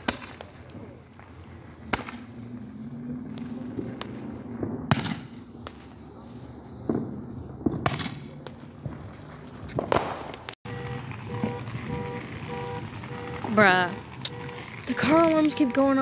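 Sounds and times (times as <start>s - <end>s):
fireworks pops: 0.0s - 2.4s, 3.3s - 5.9s, 6.8s - 16.0s
fireworks bangs: 0.0s - 16.0s
car alarm tones: 10.7s - 16.0s.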